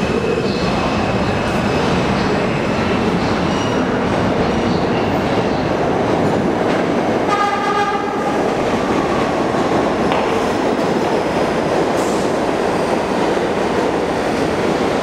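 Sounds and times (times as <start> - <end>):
train wheels on rails: 1.4 - 15.0
train horn blast: 7.3 - 8.3.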